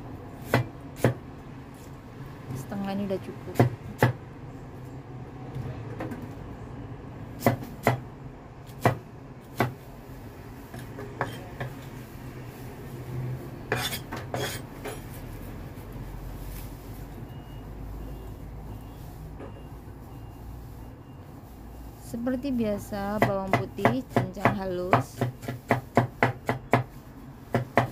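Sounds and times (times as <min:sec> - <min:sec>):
cleaver chopping on wooden board: 0:00.4 - 0:01.2, 0:08.7 - 0:09.8, 0:23.2 - 0:26.9, 0:27.5 - 0:27.9.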